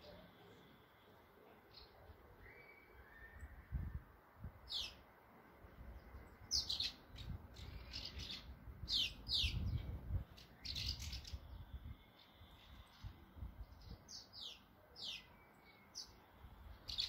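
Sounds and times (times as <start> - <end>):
swallows chirping: 4.7 - 5.0, 5.9 - 17.0.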